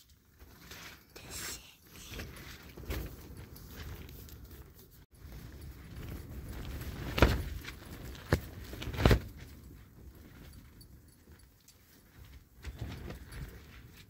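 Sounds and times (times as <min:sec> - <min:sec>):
rustling of tent fabric: 0:00.0 - 0:14.0.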